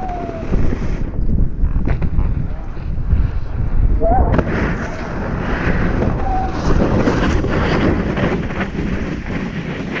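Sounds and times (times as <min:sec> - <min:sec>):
wind buffeting microphone: 0:00.0 - 0:10.0
skis scraping on packed snow: 0:04.5 - 0:10.0.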